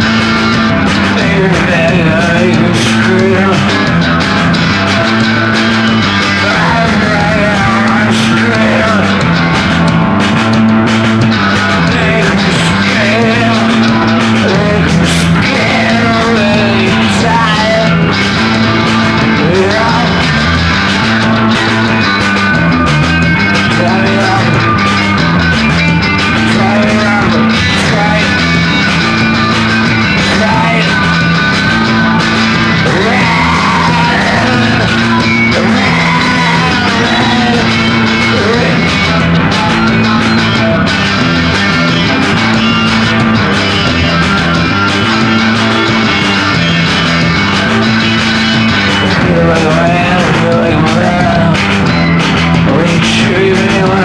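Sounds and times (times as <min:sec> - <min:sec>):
distorted electric guitar: 0:00.0 - 0:54.0
repeating bass riff: 0:00.0 - 0:54.0
person yelling vocals: 0:32.8 - 0:38.8.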